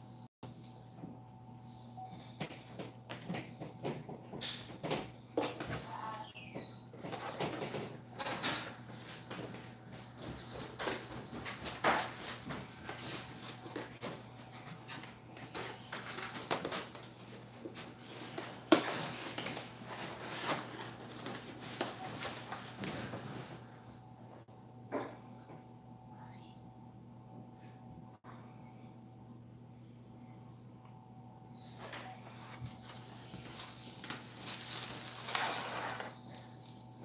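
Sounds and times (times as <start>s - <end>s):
cardboard scraping and rustling: 33.5s - 36.4s.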